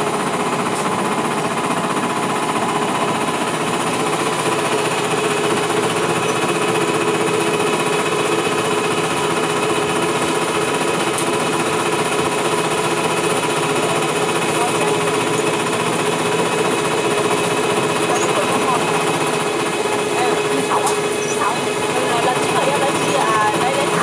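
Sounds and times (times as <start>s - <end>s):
boat engine droning: 0.0s - 24.0s.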